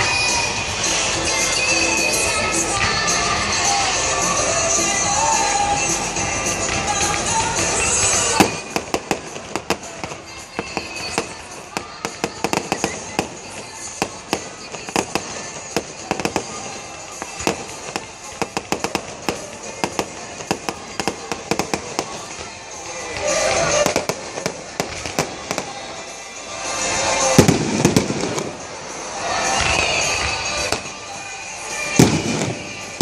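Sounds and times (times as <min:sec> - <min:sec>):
firework crackling pops: 0:06.6 - 0:33.0.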